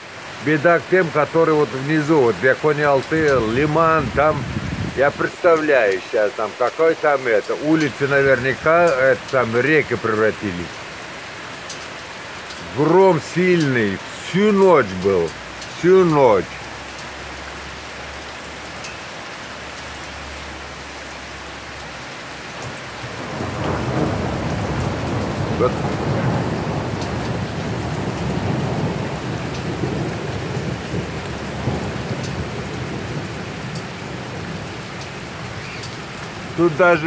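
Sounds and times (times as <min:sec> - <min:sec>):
heavy rain pouring: 0:00.0 - 0:37.0
thunder rumbling: 0:01.2 - 0:06.1, 0:23.0 - 0:35.6.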